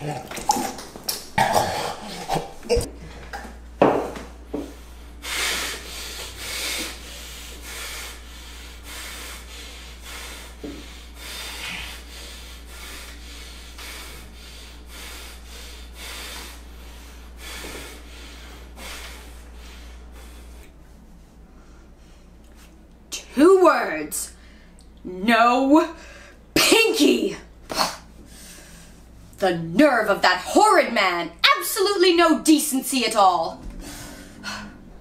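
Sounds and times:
low steady hum: 0.0s - 35.0s
heavy breathing through nose: 4.6s - 20.8s, 28.2s - 29.2s, 33.7s - 35.0s.

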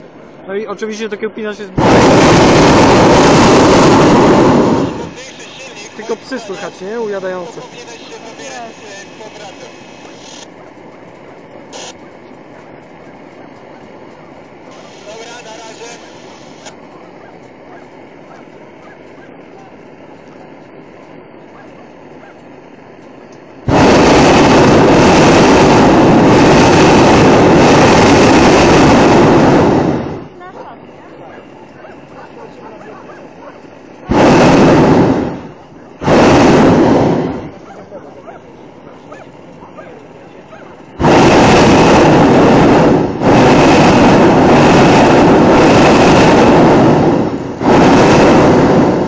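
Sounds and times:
propane burner firing: 0.0s - 49.0s.

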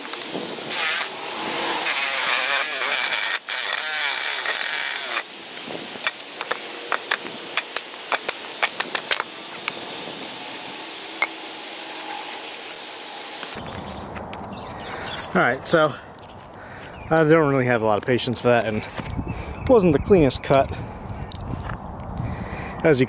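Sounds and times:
reciprocating saw cutting wood: 0.0s - 13.8s.

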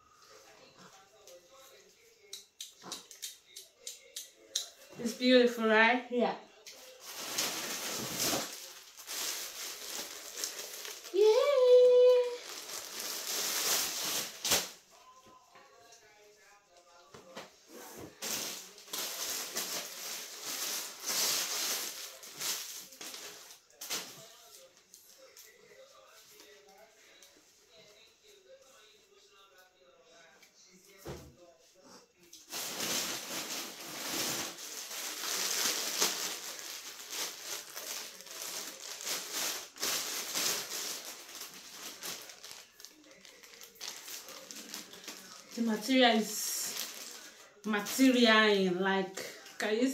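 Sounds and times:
plastic bag rustling and crinkling: 6.8s - 14.8s, 17.8s - 24.6s, 32.4s - 48.4s.

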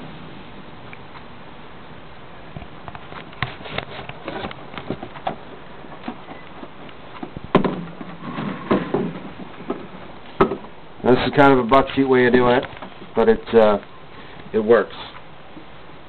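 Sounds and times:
knocks and bumps: 2.6s - 10.8s.

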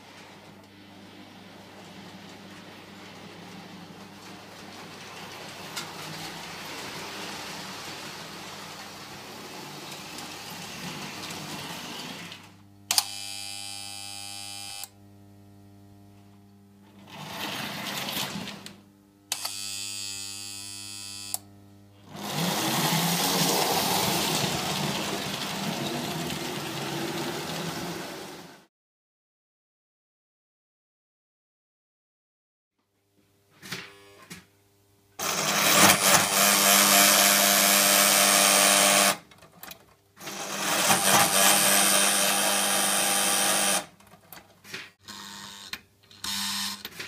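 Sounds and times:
toy trains rattling on track: 1.8s - 12.1s, 22.1s - 28.4s, 35.2s - 43.9s
model locomotive horn buzzing: 12.9s - 15.0s, 19.3s - 21.4s.

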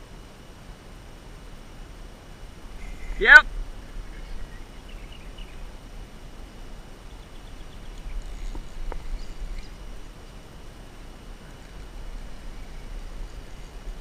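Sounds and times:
low steady rumble: 0.0s - 14.0s
faint bird chirps: 3.8s - 5.8s, 7.0s - 10.5s.

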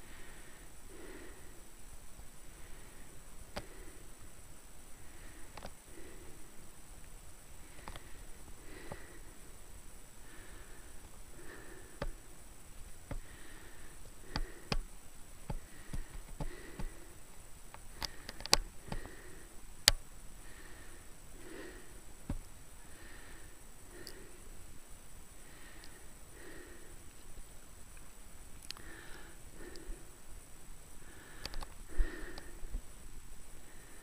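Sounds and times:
person breathing hard: 0.0s - 1.8s, 2.5s - 4.3s, 4.9s - 6.7s, 7.6s - 12.4s, 13.1s - 14.9s, 15.5s - 19.6s, 20.4s - 22.2s, 22.8s - 27.2s, 28.6s - 30.3s, 30.9s - 34.0s.

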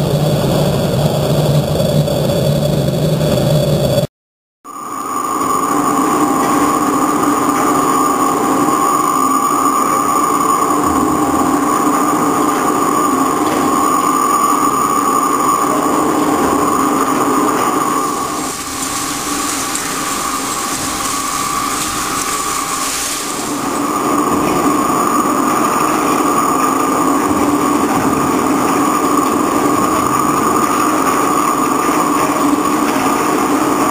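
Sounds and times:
machine hiss: 18.0s - 25.0s.

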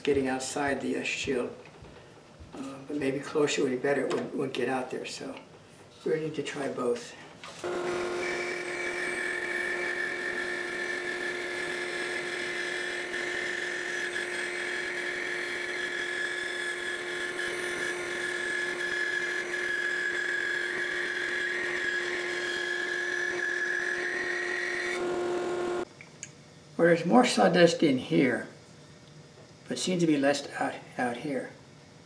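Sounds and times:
saw blade cutting wood: 7.6s - 25.8s
band saw and dust collector hum: 7.6s - 25.9s.

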